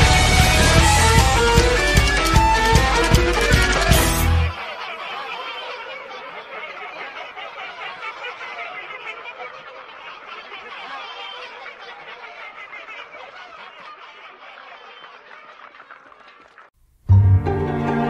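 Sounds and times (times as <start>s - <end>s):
snickering laughter: 2.9s - 16.0s.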